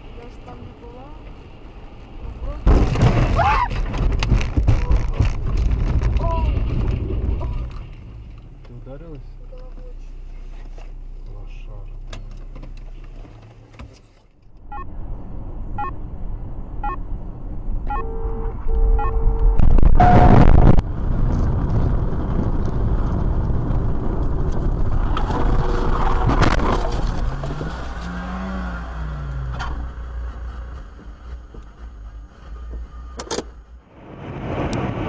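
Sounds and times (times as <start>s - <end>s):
car road and engine noise: 0.0s - 35.0s
loud sudden crash: 2.6s - 7.7s, 19.6s - 24.1s
short horn-like beeps: 17.9s - 20.5s.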